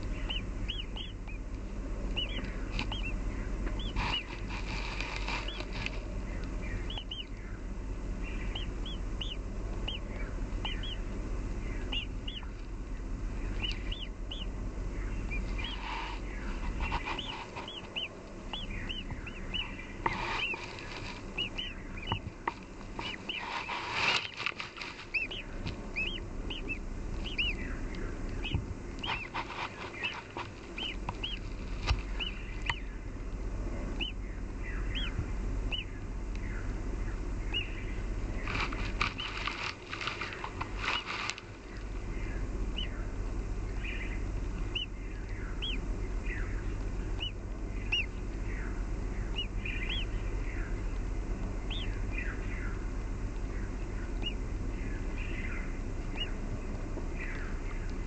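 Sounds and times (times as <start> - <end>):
chicks scrabbling in nest: 0.0 - 7.4, 8.1 - 33.0, 37.5 - 43.0, 43.7 - 48.4, 49.1 - 51.0
nestlings begging chirps: 0.0 - 58.0.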